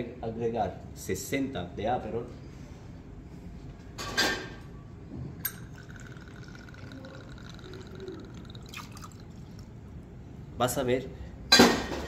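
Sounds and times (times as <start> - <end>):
bottle and jigger clatter: 5.4 - 7.8
liquid pouring in thin stream: 5.6 - 9.8.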